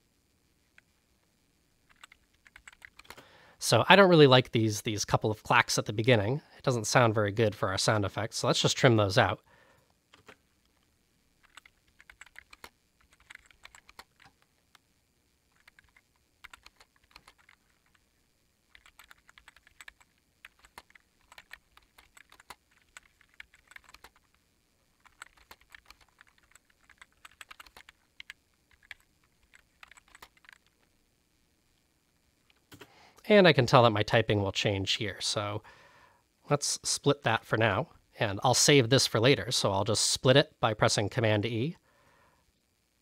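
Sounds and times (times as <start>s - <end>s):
keyboard typing: 1.8s - 3.2s, 10.1s - 10.8s, 11.4s - 14.8s, 15.5s - 18.0s, 18.7s - 24.3s, 24.9s - 30.9s.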